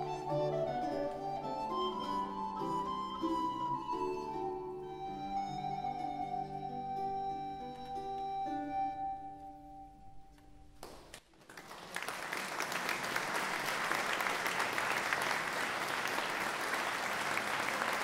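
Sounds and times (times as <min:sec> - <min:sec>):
audience applause: 0:10.8 - 0:18.0.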